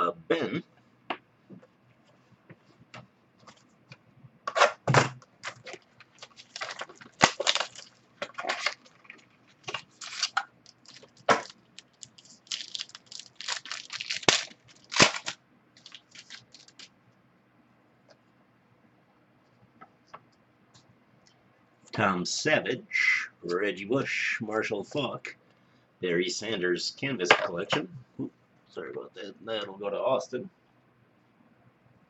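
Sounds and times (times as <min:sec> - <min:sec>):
plastic wrapper crinkling: 0:05.4 - 0:16.9.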